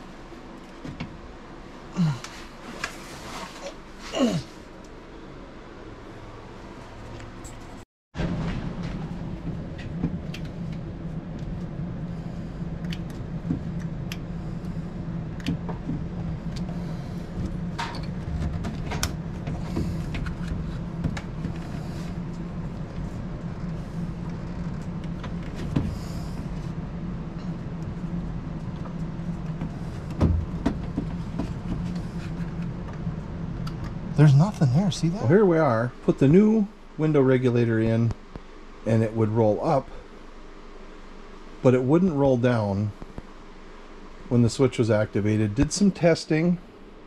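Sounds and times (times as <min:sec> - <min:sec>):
low mechanical hum: 0:00.0 - 0:47.0.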